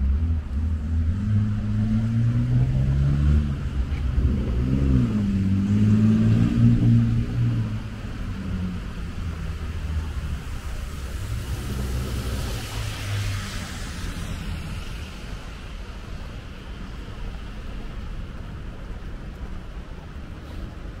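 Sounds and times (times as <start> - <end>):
tyre hiss on wet road: 9.1 - 18.7, 20.2 - 21.0.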